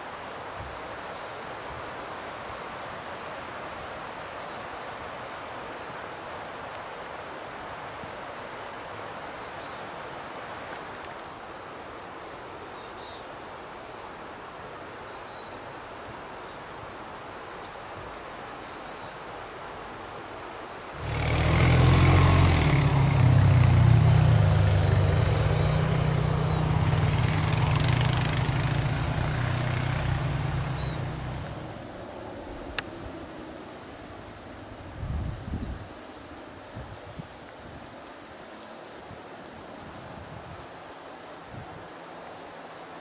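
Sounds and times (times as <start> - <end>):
steady outdoor hiss: 0.0 - 43.0
small birds chirping: 20.2 - 31.7.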